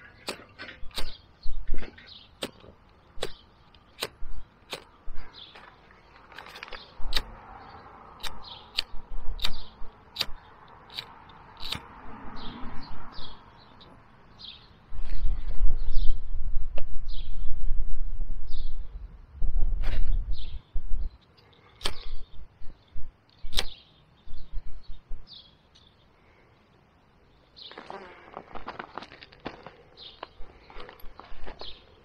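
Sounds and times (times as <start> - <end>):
wind rumbling on microphone: 0.0 - 3.4, 4.0 - 13.8, 14.4 - 21.2, 21.8 - 25.4
birds chirping: 0.0 - 16.4, 19.9 - 32.0
sharp clicks: 2.4 - 5.0, 6.4 - 7.3, 8.2 - 11.9, 21.2 - 22.2, 23.3 - 23.8.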